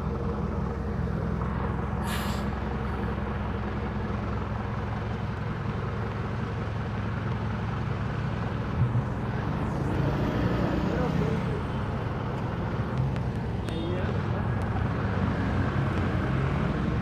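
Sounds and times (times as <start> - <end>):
bus diesel engines idling: 0.0 - 17.0
air brake hiss: 2.0 - 2.6.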